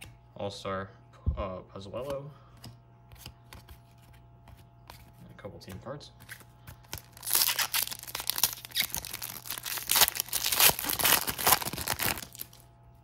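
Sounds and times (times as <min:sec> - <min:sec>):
foil wrapper tearing and crinkling: 0:06.9 - 0:12.6.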